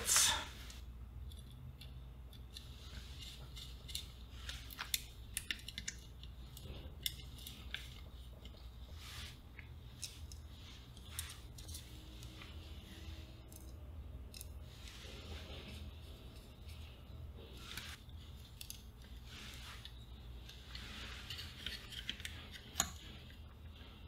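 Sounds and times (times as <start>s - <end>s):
steady low hum: 0.0s - 24.0s
screwdriver clicks and scrapes: 1.2s - 12.5s, 17.6s - 23.5s.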